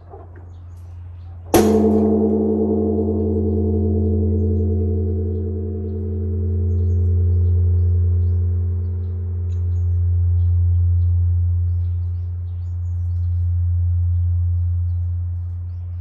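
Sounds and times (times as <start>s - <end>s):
birds chirping faintly: 0.0s - 16.0s
large bronze bell ringing: 1.0s - 16.0s.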